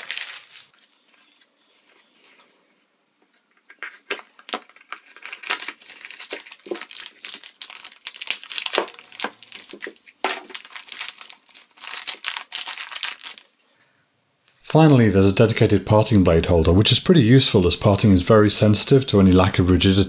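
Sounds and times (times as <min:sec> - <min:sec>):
plastic bag crinkling: 0:00.0 - 0:02.1, 0:03.8 - 0:13.6.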